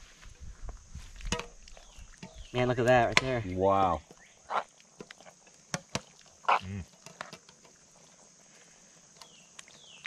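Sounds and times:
insect hiss: 0.0s - 10.0s
grunt-like voice: 6.6s - 6.9s.

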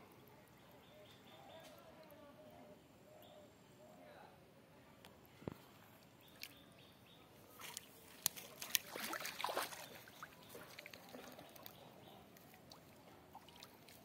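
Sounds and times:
fish splashing in water: 7.5s - 11.8s, 12.4s - 14.0s
sharp water slaps: 7.6s - 11.8s.

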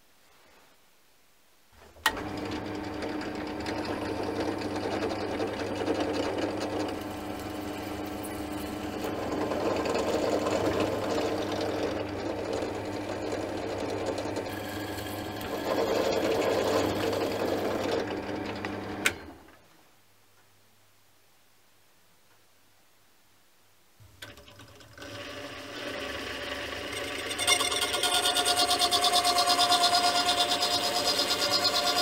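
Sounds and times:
drill press drilling plastic: 2.0s - 19.4s, 24.2s - 32.0s.

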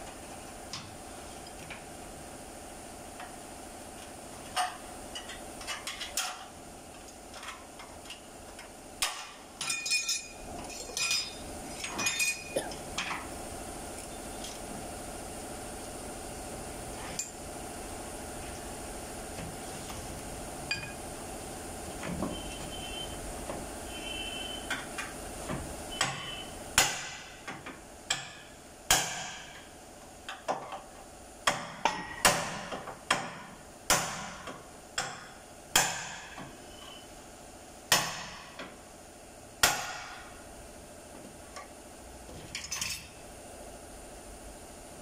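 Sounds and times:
hammer striking steel: 26.0s - 27.4s, 28.1s - 29.5s, 35.0s - 36.4s, 39.6s - 40.3s.

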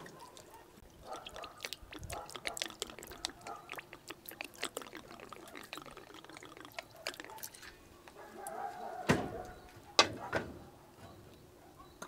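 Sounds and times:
liquid dripping and splashing: 0.0s - 7.8s
liquid pouring onto meat: 1.2s - 7.6s.

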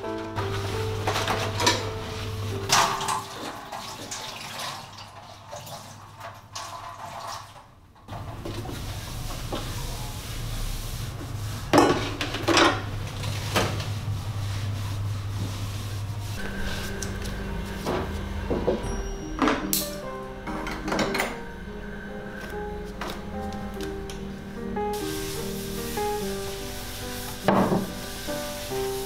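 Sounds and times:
dishes and pots clinking: 0.4s - 5.7s, 11.7s - 12.9s, 17.8s - 21.4s.

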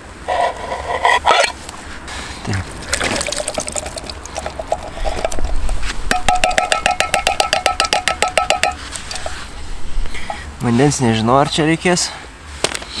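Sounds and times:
knife sawing tin can lid: 0.3s - 1.6s.

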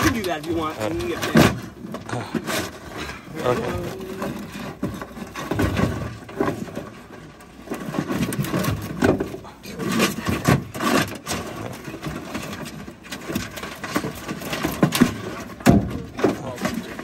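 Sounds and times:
crab shells knocking and scraping: 0.0s - 17.0s.

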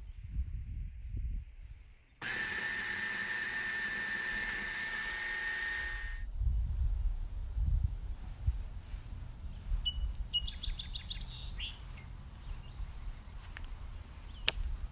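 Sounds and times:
food chopper motor whining: 2.2s - 6.2s.

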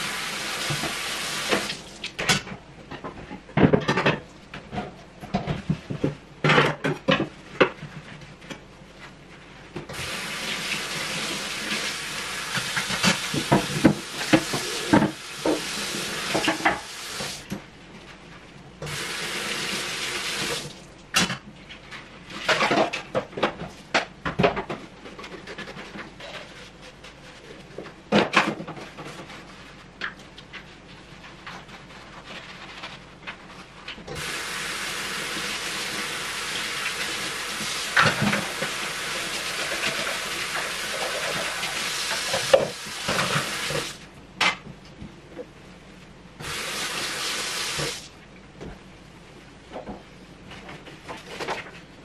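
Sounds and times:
kitchen tap running into sink: 0.0s - 2.2s, 9.9s - 17.4s, 18.9s - 20.8s, 34.2s - 44.0s, 46.4s - 48.1s.

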